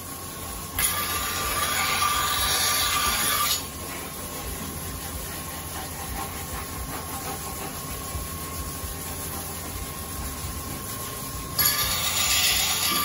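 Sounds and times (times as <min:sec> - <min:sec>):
knife grinding on wheel: 0:00.8 - 0:07.9, 0:11.4 - 0:13.0.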